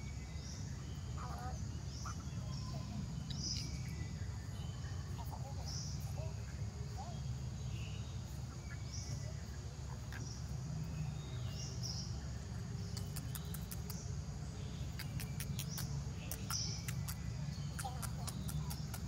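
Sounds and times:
crickets buzzing: 0:00.0 - 0:19.0
fast sharp clicks: 0:12.9 - 0:14.0.

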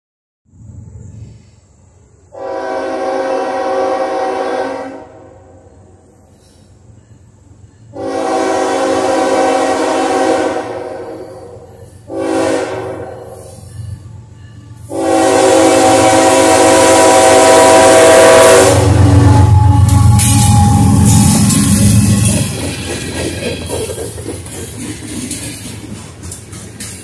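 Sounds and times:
locomotive air horn blasts: 0:02.4 - 0:05.7, 0:07.9 - 0:13.7, 0:14.9 - 0:22.4.

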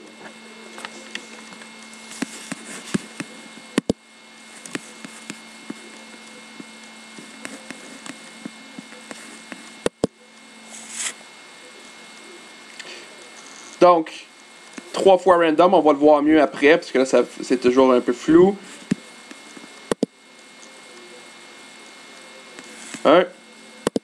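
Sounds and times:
steady electrical hum: 0:00.0 - 0:24.0.

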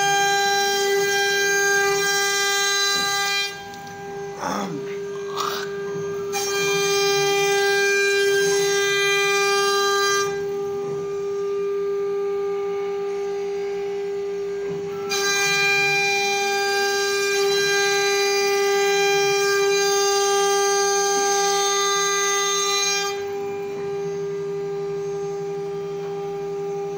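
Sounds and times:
router bit cutting wood: 0:00.0 - 0:10.4
router spindle whining: 0:00.0 - 0:10.8.

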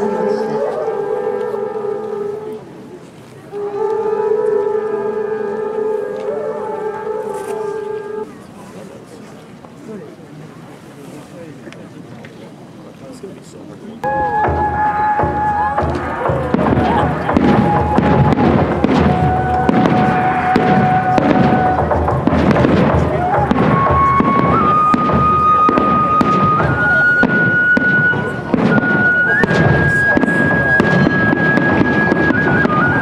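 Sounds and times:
music with long held notes: 0:00.0 - 0:02.7, 0:03.5 - 0:08.3, 0:14.0 - 0:33.0
fireworks bangs and crackle: 0:14.7 - 0:33.0.

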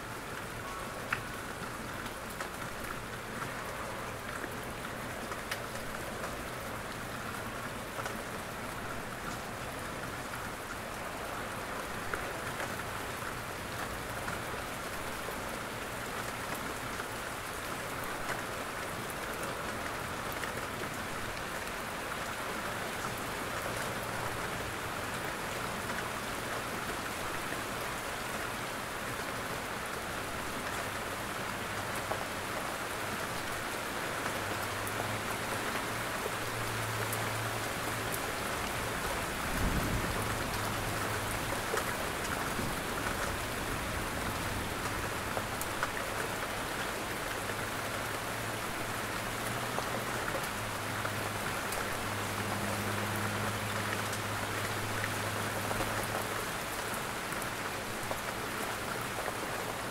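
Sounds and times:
raindrops tapping on roof: 0:00.0 - 0:59.9
steady rain falling: 0:00.0 - 0:59.9.

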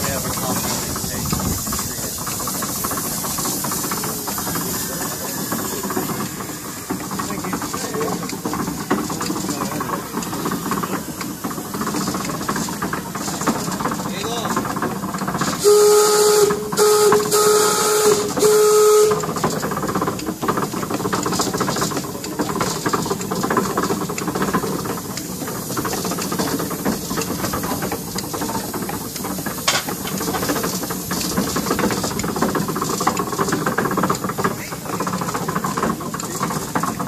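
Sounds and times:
steam engine hissing: 0:00.0 - 0:37.0
steam whistle blasts: 0:15.6 - 0:19.3.

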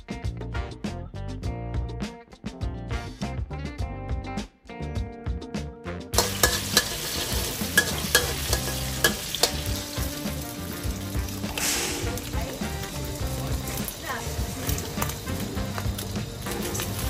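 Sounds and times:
background music: 0:00.0 - 0:17.0
metal spatula scraping a wok: 0:06.2 - 0:10.7, 0:11.4 - 0:13.0
tofu sizzling in hot oil: 0:06.2 - 0:17.0.

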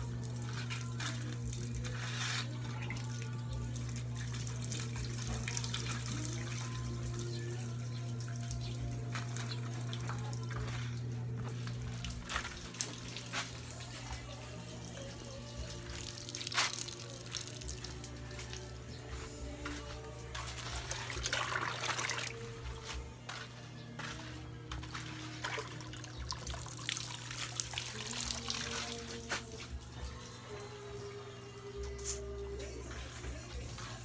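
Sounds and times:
music playing: 0:00.0 - 0:34.0
tap water splashing into basin: 0:20.9 - 0:22.4, 0:25.4 - 0:29.5.

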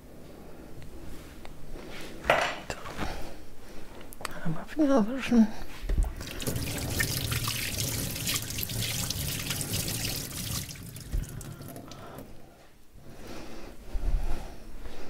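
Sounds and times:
water running from a tap: 0:06.0 - 0:12.3.

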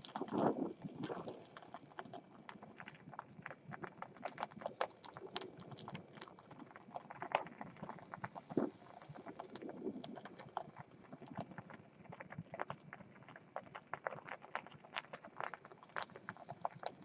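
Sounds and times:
plastic cup crackling and popping: 0:00.0 - 0:17.0.

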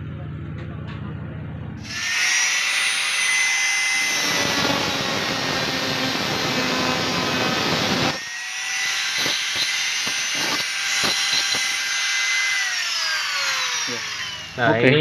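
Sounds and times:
angle grinder cutting steel: 0:01.8 - 0:15.0.

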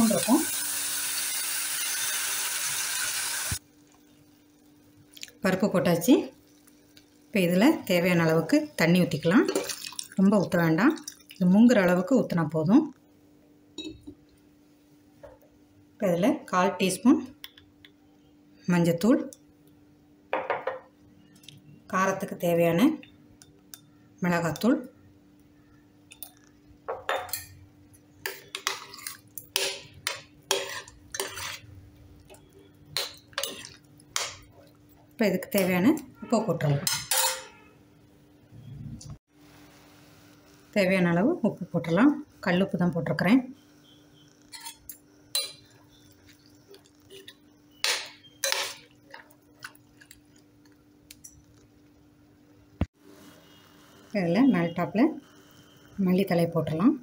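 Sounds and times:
metal spoon scraping a pot: 0:28.2 - 0:31.7, 0:33.0 - 0:34.3, 0:36.8 - 0:37.6, 0:44.5 - 0:46.0, 0:47.1 - 0:48.9.

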